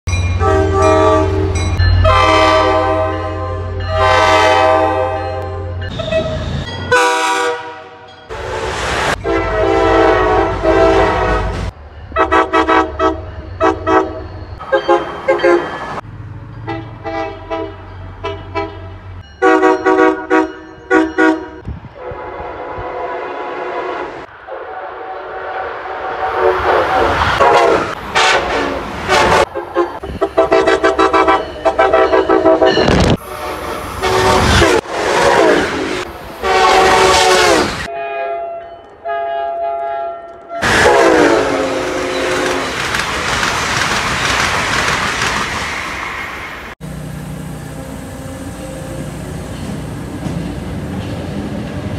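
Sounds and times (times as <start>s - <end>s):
trains rushing past: 0.1s - 20.8s, 21.6s - 37.9s, 40.6s - 51.9s
train air horn blasts: 0.4s - 15.7s, 16.7s - 42.8s.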